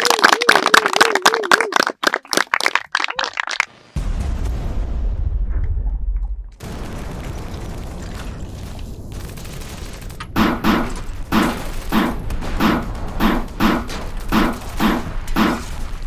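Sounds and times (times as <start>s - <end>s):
deep rumble: 4.0s - 10.4s
rifle shots: 8.6s - 16.0s.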